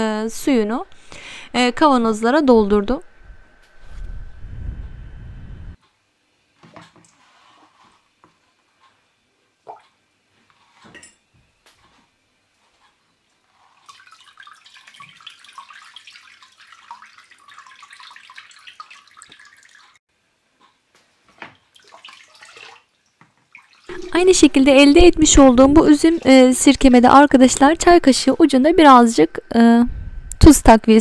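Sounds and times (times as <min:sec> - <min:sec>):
liquid trickling through a strainer: 0:13.5 - 0:20.0, 0:21.6 - 0:24.2.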